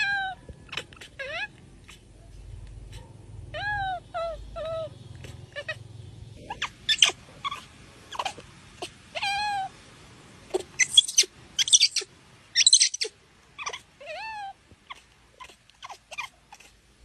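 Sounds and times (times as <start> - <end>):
monkey coo calls: 6.4 - 9.7, 10.5 - 16.7
sharp high monkey calls: 6.4 - 9.7, 10.5 - 16.8.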